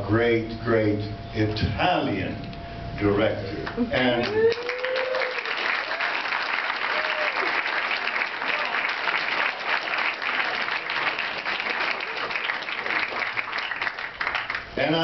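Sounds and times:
audience applauding: 0:04.0 - 0:14.8.

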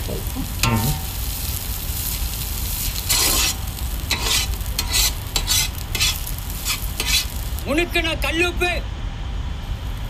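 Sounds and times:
frying sizzle: 0:00.0 - 0:08.3
metal ladle scraping a wok: 0:00.5 - 0:07.5.

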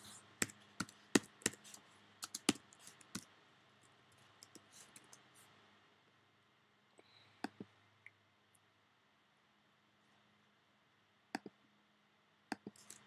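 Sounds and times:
computer keyboard key clicks: 0:02.2 - 0:03.2.

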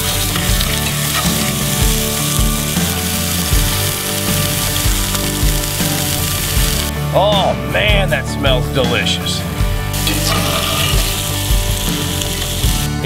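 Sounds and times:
burger patties sizzling in oil: 0:00.0 - 0:06.9, 0:09.8 - 0:13.0
background music with slow beat: 0:00.0 - 0:13.0.

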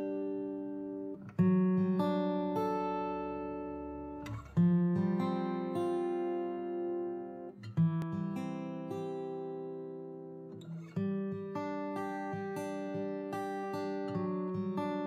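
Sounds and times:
acoustic guitar: 0:00.0 - 0:15.0.

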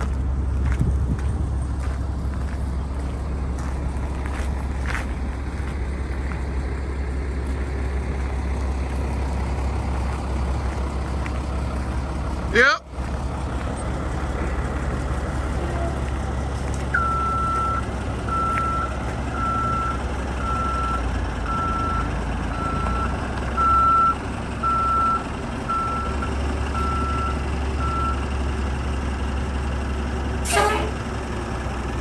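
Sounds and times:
diesel engine rumbling: 0:00.0 - 0:32.0
truck backup alarm beeping: 0:16.9 - 0:29.1.

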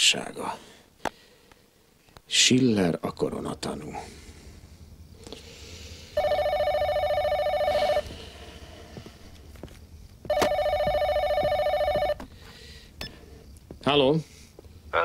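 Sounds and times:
telephone ringing: 0:06.2 - 0:08.1, 0:10.3 - 0:12.2.

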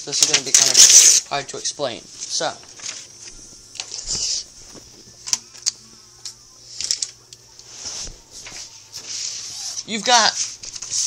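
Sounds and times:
paper rustling: 0:00.1 - 0:01.3, 0:02.2 - 0:05.2, 0:06.8 - 0:11.0.

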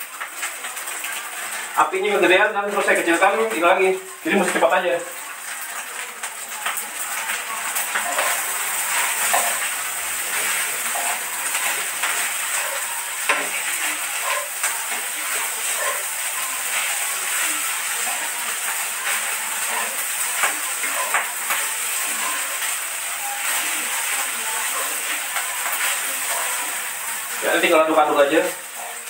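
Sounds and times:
rice sizzling in a frying pan: 0:00.0 - 0:29.0
spatula scraping a pan: 0:05.3 - 0:27.8.

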